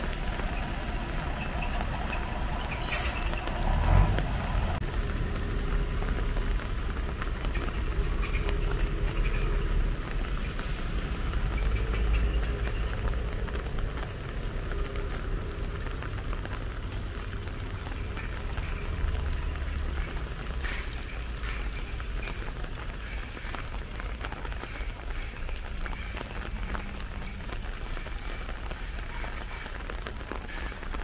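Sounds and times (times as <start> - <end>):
low urban rumble: 0.0 - 31.0.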